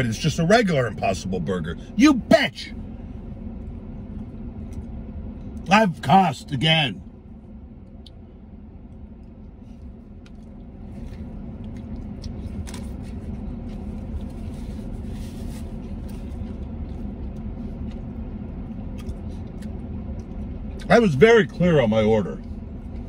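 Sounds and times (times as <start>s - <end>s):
truck cab rumble: 0.0s - 23.0s
chewing and mouth sounds: 8.8s - 20.9s.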